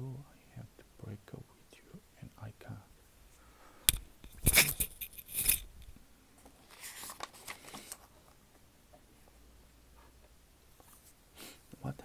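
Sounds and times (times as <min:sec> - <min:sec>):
book pages flipping and rustling: 0:04.2 - 0:08.4.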